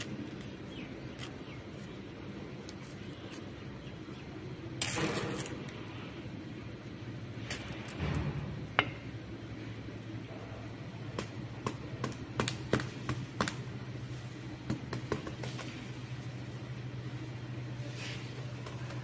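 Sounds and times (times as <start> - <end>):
steady low background hum: 0.0 - 19.0.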